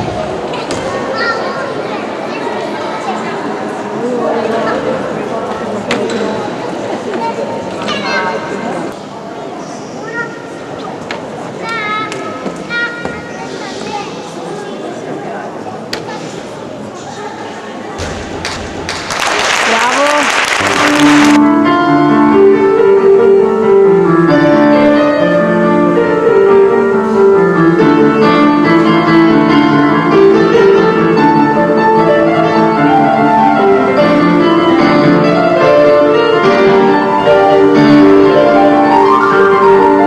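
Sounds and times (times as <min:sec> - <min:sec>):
piano background music: 0:20.6 - 0:40.0.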